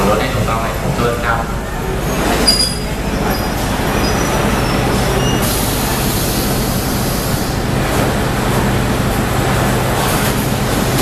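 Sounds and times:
diesel train engine rumbling: 0.0s - 11.0s
hiss: 5.4s - 7.6s.

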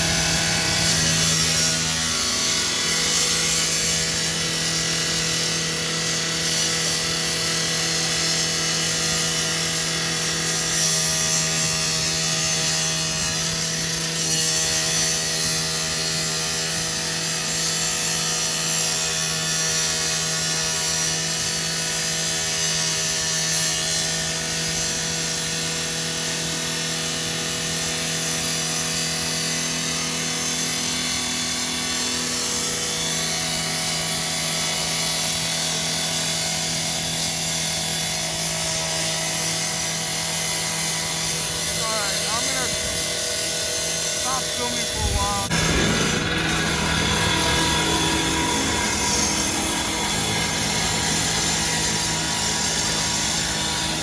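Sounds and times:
power saw cutting metal: 0.0s - 54.0s
low engine hum: 43.7s - 54.0s.

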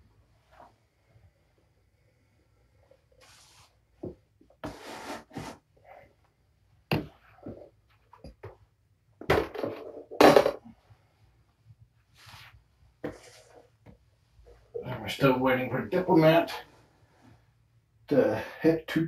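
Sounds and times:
plastic scale knocking and thudding: 9.2s - 10.7s.

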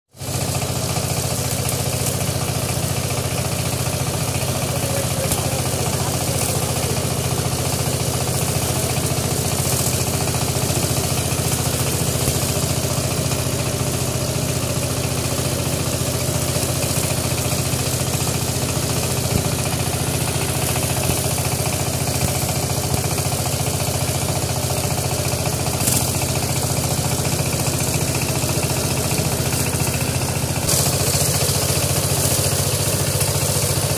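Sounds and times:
diesel engine running: 0.2s - 33.9s.

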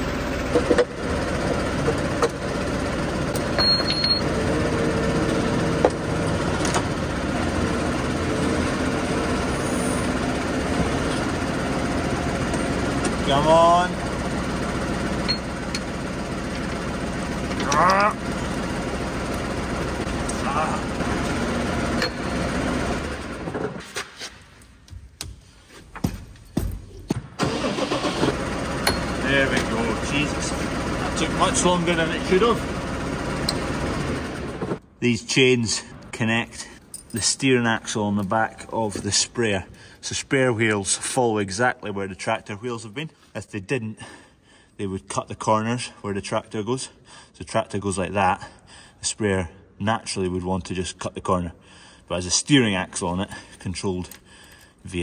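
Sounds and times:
tractor engine running: 0.0s - 23.8s, 26.0s - 34.9s
metal clunks and clicks: 0.5s - 1.0s.

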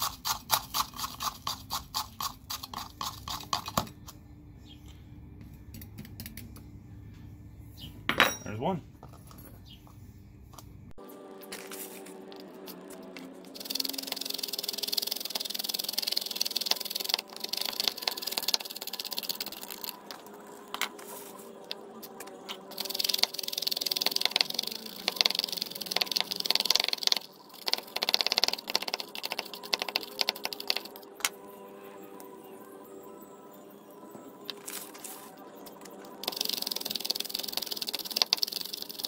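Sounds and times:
screwdriver scratching in funnel: 0.0s - 3.8s, 13.6s - 20.0s, 22.7s - 31.1s, 36.2s - 39.0s.

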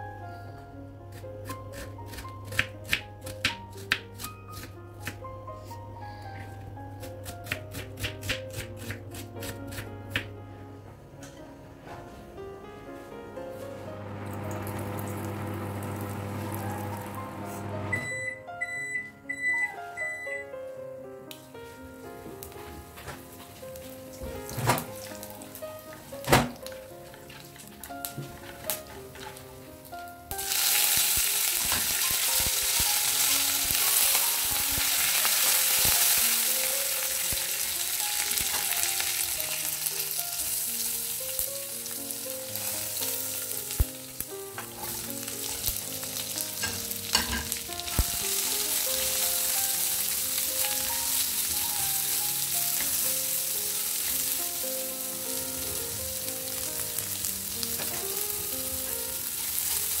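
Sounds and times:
hot oil sizzling: 14.0s - 17.5s, 30.3s - 60.0s.

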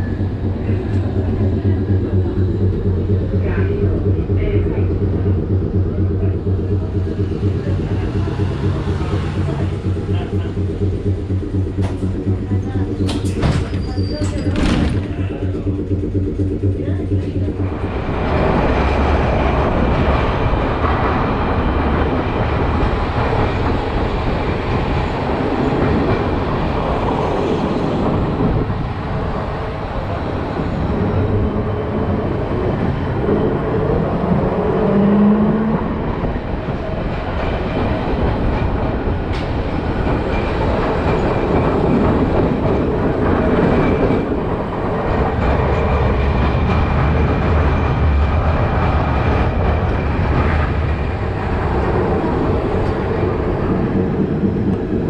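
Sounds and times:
low motor hum: 0.0s - 26.4s
tram wheels rumbling on rails: 0.0s - 55.0s.

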